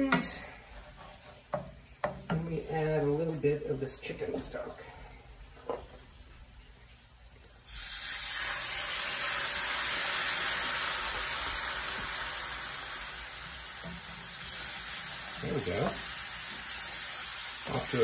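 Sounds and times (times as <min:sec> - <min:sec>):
stock hissing and sizzling in hot pan: 0:07.6 - 0:18.0.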